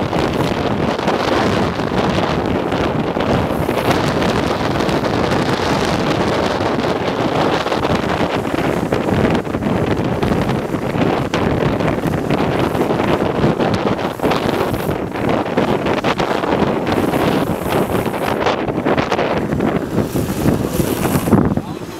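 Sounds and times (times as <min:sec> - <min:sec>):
wind buffeting microphone: 0:00.0 - 0:21.9.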